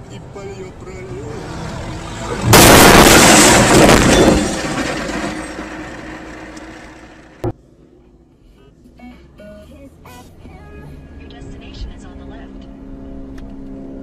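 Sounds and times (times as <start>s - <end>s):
car crash impact: 2.2s - 7.5s
glass breaking: 2.4s - 7.5s.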